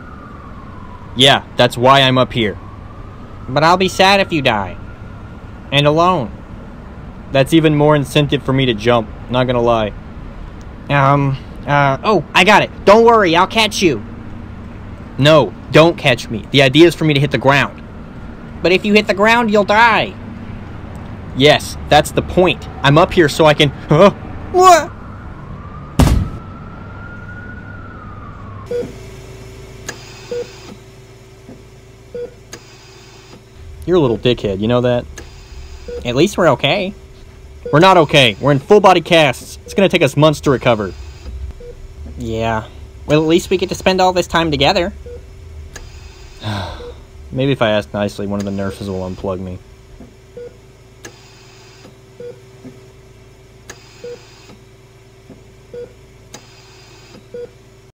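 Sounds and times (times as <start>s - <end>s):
steady electrical hum: 28.9s - 57.2s
heart monitor beeps: 30.3s - 30.6s, 50.4s - 50.6s, 53.8s - 54.5s
steady low tone: 33.4s - 50.6s.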